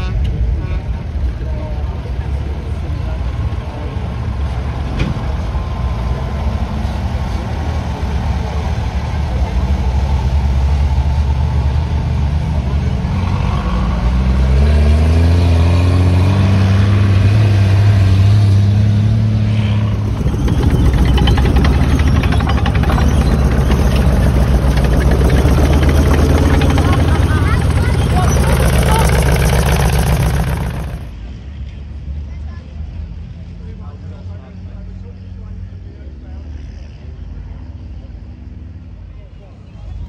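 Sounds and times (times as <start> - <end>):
armoured vehicle engines driving past: 0.0 - 40.0
engine accelerating: 2.3 - 31.3.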